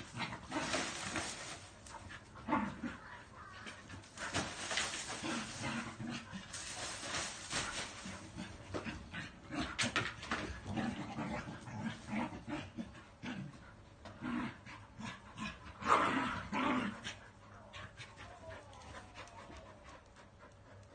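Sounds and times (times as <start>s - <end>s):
dogs scuffling: 0.0s - 2.4s, 3.5s - 9.0s
dogs play vocalisations: 0.0s - 20.9s.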